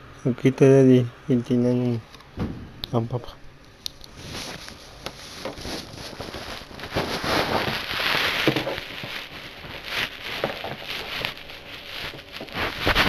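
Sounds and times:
crackly rustling from handling: 0:03.6 - 0:13.0.

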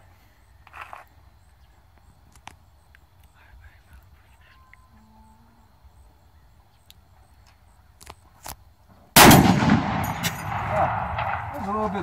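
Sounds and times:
gunshot echo: 0:09.2 - 0:12.0
loud rifle shot: 0:09.2 - 0:12.0.

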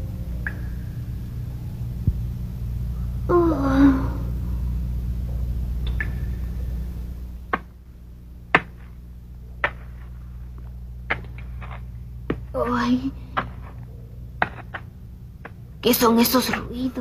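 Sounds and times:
low drone: 0:00.0 - 0:07.5.

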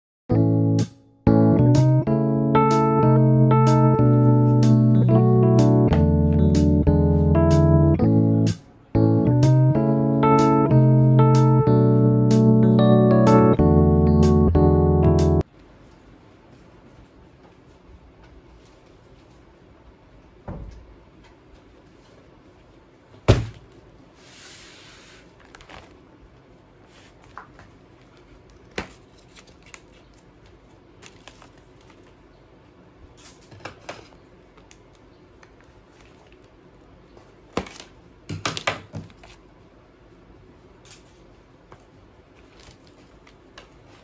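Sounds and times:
low room hum: 0:01.0 - 0:44.0
plastic rustling: 0:25.2 - 0:26.1, 0:27.0 - 0:32.2, 0:42.3 - 0:44.0.

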